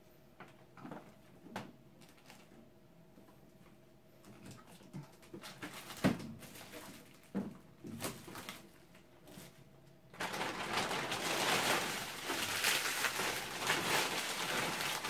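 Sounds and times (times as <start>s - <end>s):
plastic bag rustling: 5.3s - 9.6s, 10.2s - 15.0s.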